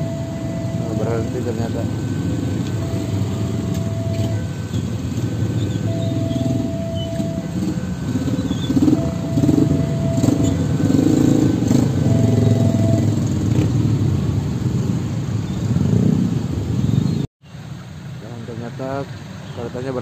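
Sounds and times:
steady warning tone: 0.0s - 13.4s
motorcycle engines pulling away: 0.0s - 17.2s.

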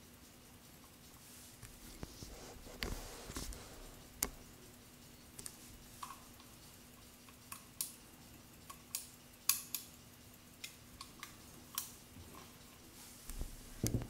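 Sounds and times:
sharp metallic watch clicks: 8.6s - 10.0s.

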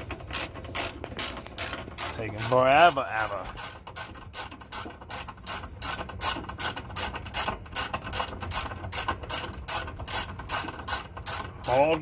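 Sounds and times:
ratchet wrench clicking: 0.2s - 2.6s.

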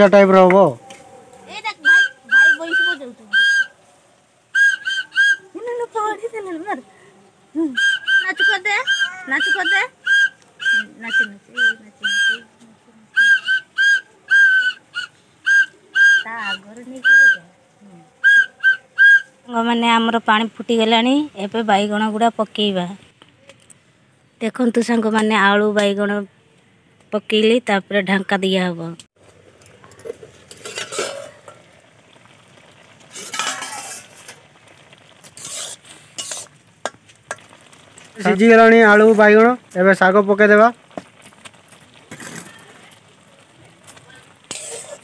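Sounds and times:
light sizzle: 0.0s - 45.0s
short high whistled notes: 1.8s - 3.8s, 4.6s - 5.4s, 18.2s - 19.3s
warbling whistled note: 1.8s - 3.8s, 4.5s - 5.8s, 7.6s - 12.5s, 13.1s - 17.5s, 18.2s - 19.3s
spatula scraping a pan: 29.9s - 31.6s, 33.0s - 34.5s, 35.1s - 37.5s, 44.4s - 45.0s.

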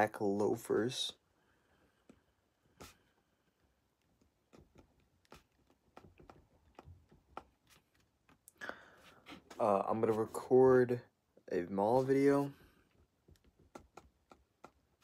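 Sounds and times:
pen scratching on paper: 4.2s - 8.0s.

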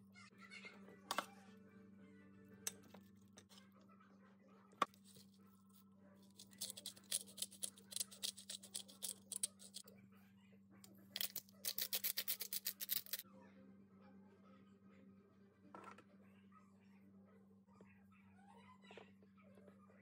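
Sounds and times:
pepper mill grinding: 6.2s - 9.8s, 11.2s - 13.2s.

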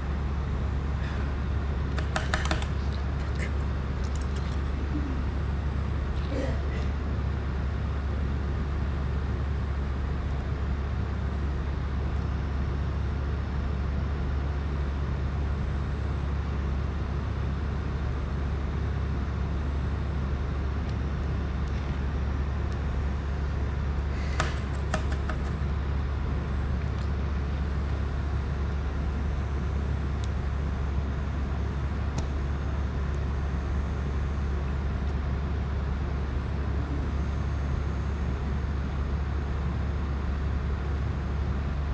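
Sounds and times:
steady low hum: 0.0s - 41.9s
small clicks: 4.0s - 4.6s.

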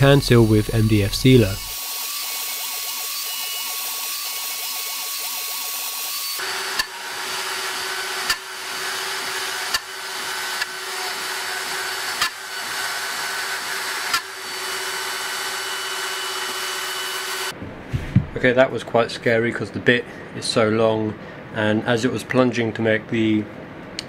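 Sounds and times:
router spindle drone: 0.0s - 17.5s
vacuum running: 5.5s - 18.4s.

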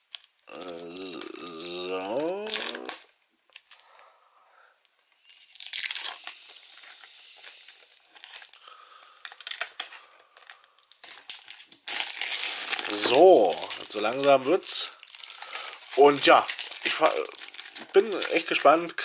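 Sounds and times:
plastic wrap crinkling: 0.0s - 4.0s, 5.2s - 19.0s
wordless vocal sound: 0.5s - 3.1s, 12.8s - 15.0s.

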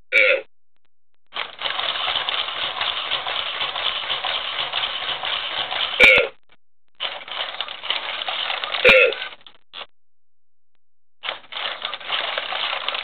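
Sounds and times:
robot voice-like grunt: 0.1s - 0.5s
toy robot motors whirring: 1.4s - 6.0s, 7.0s - 9.4s, 11.2s - 13.0s.

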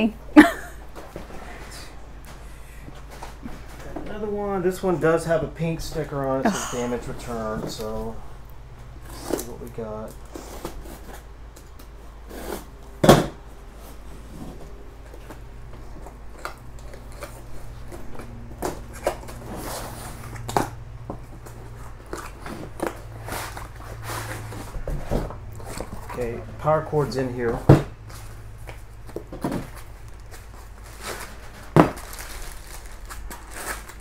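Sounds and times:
cardboard packaging rustling: 8.8s - 13.0s, 13.6s - 34.0s
box thump: 13.0s - 13.4s.

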